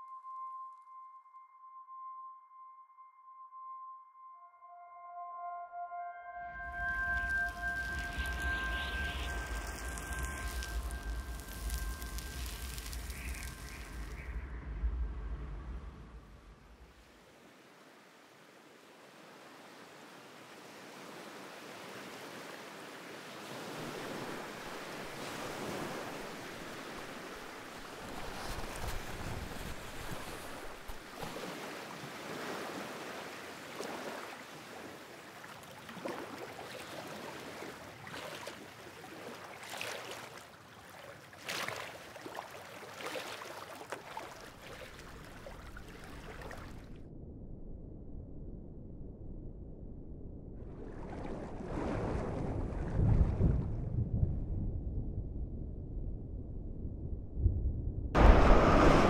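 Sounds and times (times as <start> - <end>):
sea waves washing: 6.7 - 17.8, 19.0 - 46.9, 58.2 - 59.0.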